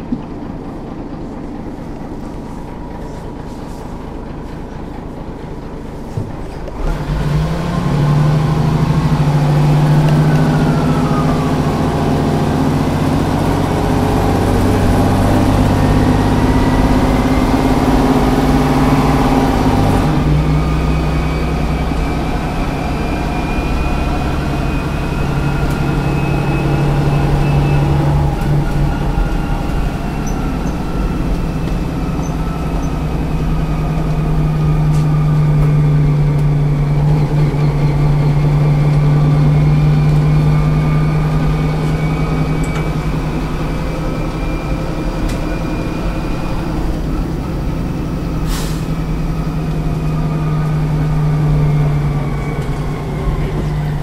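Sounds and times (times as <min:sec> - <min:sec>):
bus diesel engine idling: 0:00.0 - 0:54.0
brief hiss: 0:48.4 - 0:49.0.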